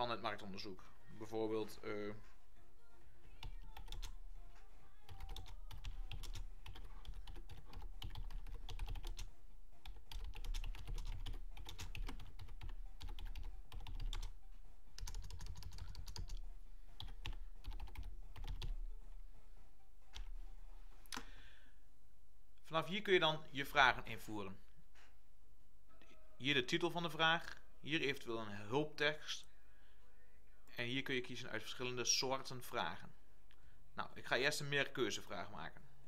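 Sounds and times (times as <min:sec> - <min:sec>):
computer keyboard typing: 0:03.4 - 0:04.2, 0:05.1 - 0:14.4, 0:15.0 - 0:18.8.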